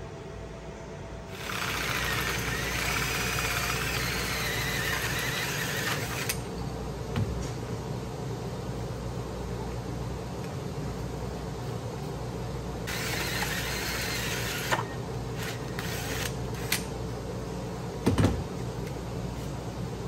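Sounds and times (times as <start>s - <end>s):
steady background hum: 0.0s - 20.0s
drill cutting plastic: 1.3s - 6.4s, 12.9s - 16.8s.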